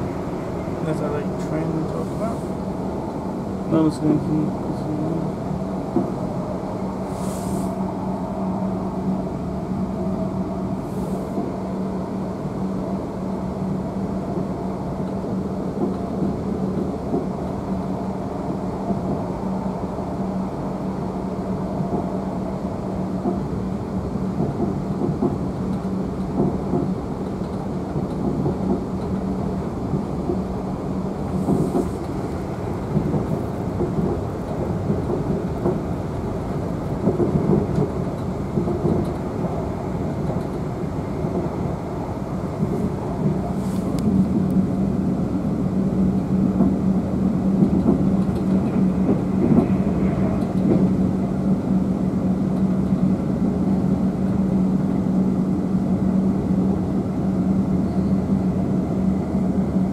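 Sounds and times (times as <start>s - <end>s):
train interior rumble: 0.0s - 59.9s
brief hisses: 7.1s - 7.8s.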